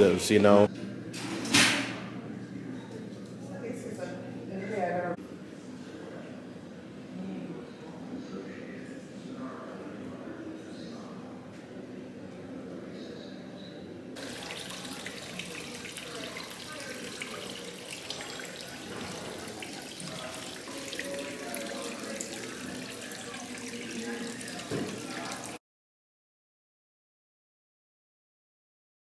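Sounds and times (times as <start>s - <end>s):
water running and splashing: 14.2s - 25.6s.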